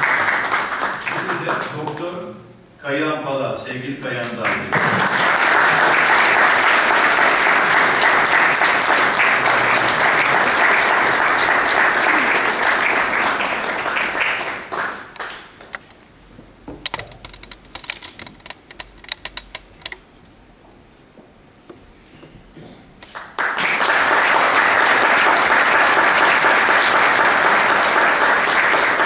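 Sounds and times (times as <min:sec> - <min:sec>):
audience applauding: 0:00.0 - 0:02.0, 0:04.4 - 0:15.8, 0:23.0 - 0:29.0.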